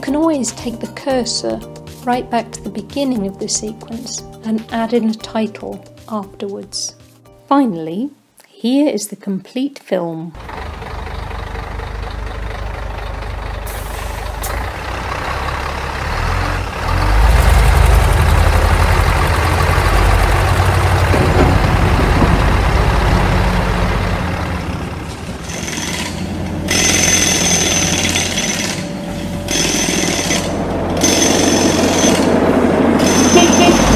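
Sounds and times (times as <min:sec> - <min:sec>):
heavy vehicle engine rumbling: 0:10.4 - 0:33.9
higher steady tones: 0:17.5 - 0:33.9.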